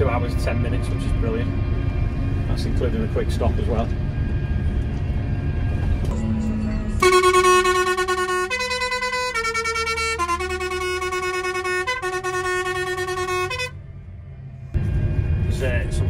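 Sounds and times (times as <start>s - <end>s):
combine harvester engine rumble: 0.0s - 16.0s
musical air horn playing tune: 7.0s - 13.8s.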